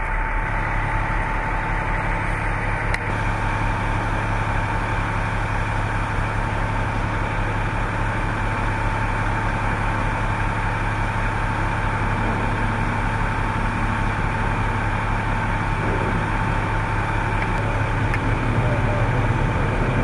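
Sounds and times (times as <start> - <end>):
vehicle engine idling: 0.0 - 20.0.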